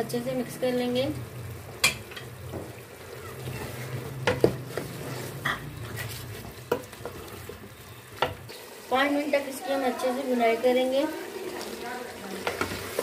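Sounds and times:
meat sizzling in oil: 0.0 - 13.0
wooden spoon scraping a pot: 2.9 - 7.9.

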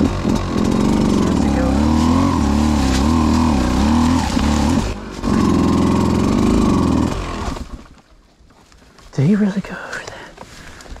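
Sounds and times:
two-stroke dirt bike engine revving: 0.0 - 7.8.

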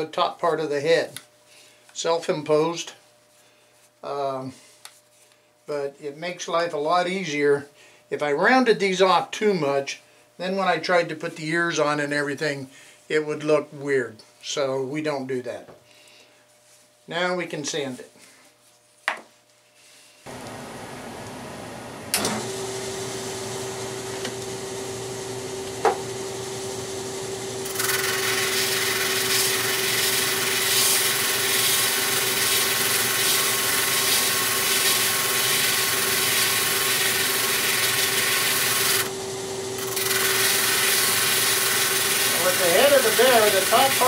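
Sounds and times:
drum sander motor humming: 20.3 - 44.0
wood sanding noise: 27.0 - 39.1, 39.7 - 44.0.

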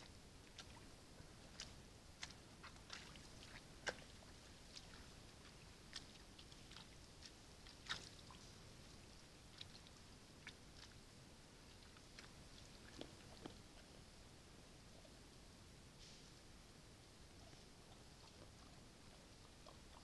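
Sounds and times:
faint steady hiss: 0.0 - 20.0.

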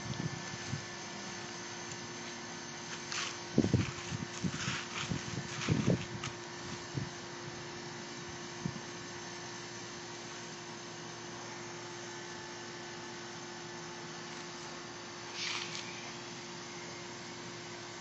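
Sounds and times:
steady hum: 0.0 - 18.0.

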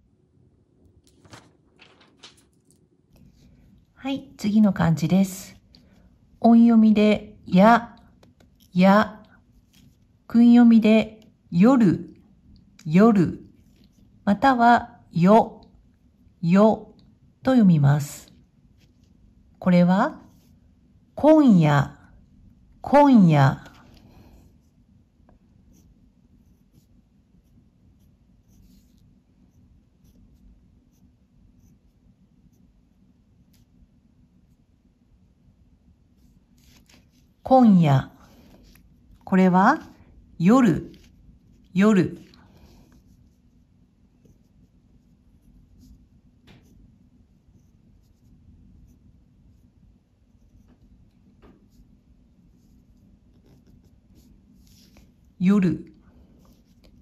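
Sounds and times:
pen scratching on paper: 25.6 - 32.8, 40.8 - 49.7, 50.3 - 51.0, 51.6 - 55.2.

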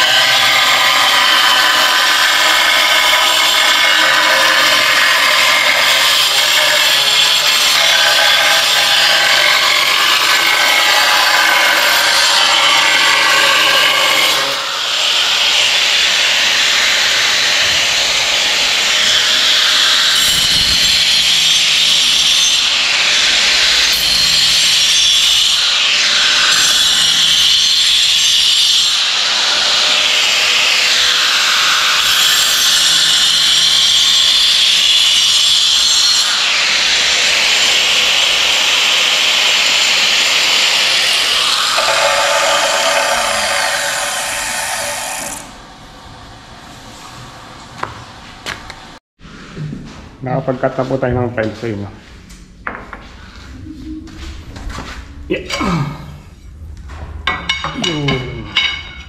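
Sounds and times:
angle grinder cutting tile: 0.0 - 45.6.

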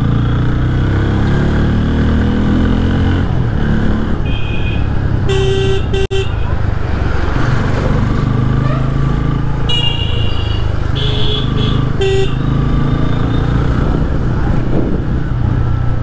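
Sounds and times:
vehicle horn toots: 4.2 - 6.4, 9.6 - 13.5
motorcycle engine running: 7.8 - 16.0.

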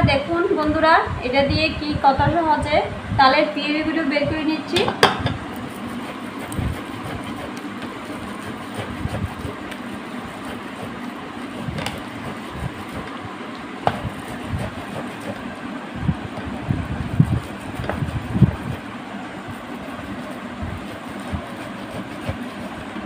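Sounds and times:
fruit scraping on metal grater: 5.6 - 13.1, 13.9 - 15.5, 17.0 - 18.9, 19.5 - 23.0.

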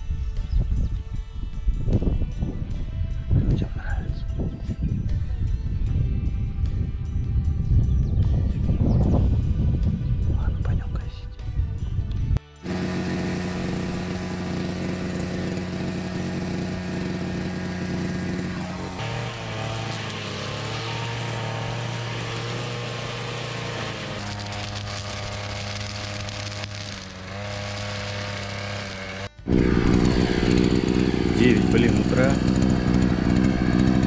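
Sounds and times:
grass trimmer engine running: 12.6 - 34.0.

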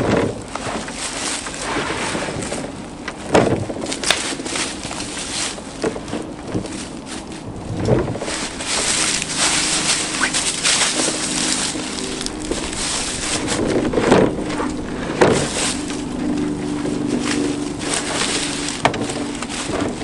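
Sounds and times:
steady rustling hiss: 0.0 - 20.0
firewood knocking and thudding: 12.2 - 17.2.

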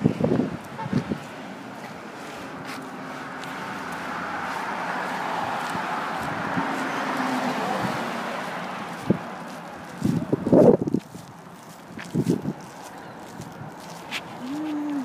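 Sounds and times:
car passing close by: 1.8 - 9.8
vehicle driving past: 2.2 - 9.5.

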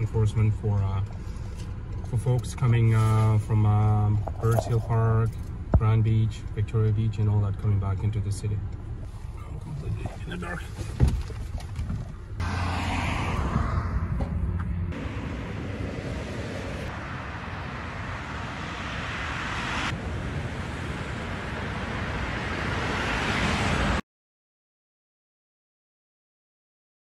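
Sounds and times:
highway traffic rushing: 0.0 - 24.0.

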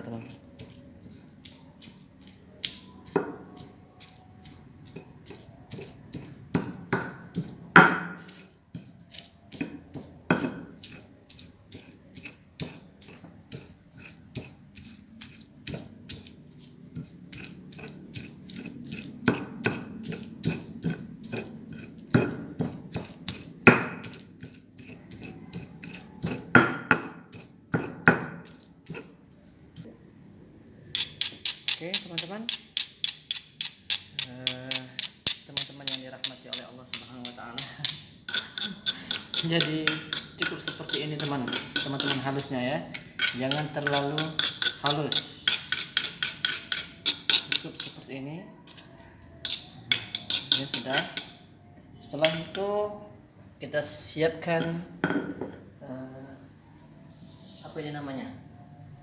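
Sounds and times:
stone pestle pounding in mortar: 0.1 - 29.1, 30.9 - 48.1.

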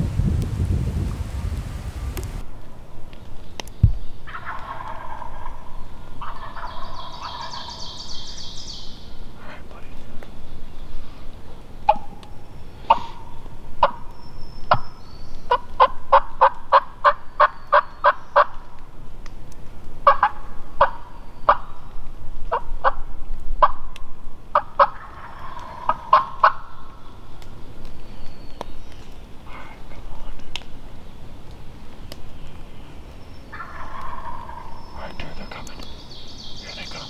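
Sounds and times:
turkey yelping: 4.3 - 8.2, 20.0 - 21.6, 24.5 - 26.8, 33.5 - 34.8.

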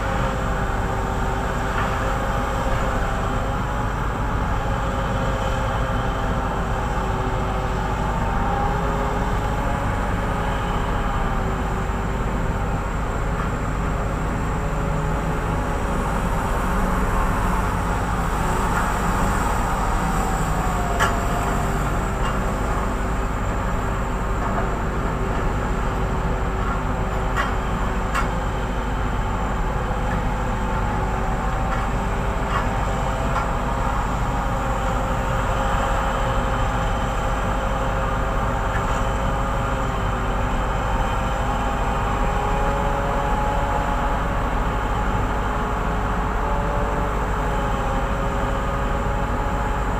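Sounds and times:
heavy machinery diesel engines droning: 0.0 - 49.9.

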